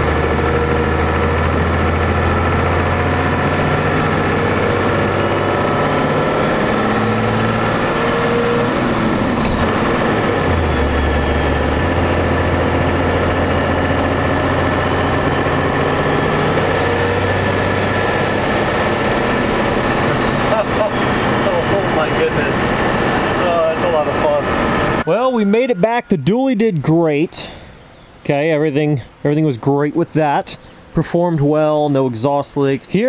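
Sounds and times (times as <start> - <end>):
diesel engine under load: 0.0 - 33.0
turbo whistle: 17.1 - 21.6, 24.8 - 26.8.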